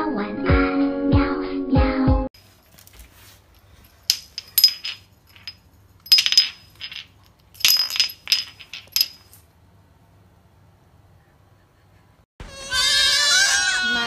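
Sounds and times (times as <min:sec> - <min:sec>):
metal bowl clinking on floor: 0:03.8 - 0:09.4.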